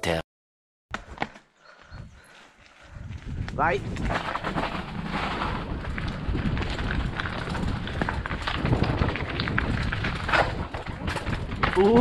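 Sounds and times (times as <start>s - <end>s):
bike knocks and rattles: 3.9s - 12.0s
tyres rolling over loose ground: 4.0s - 12.0s.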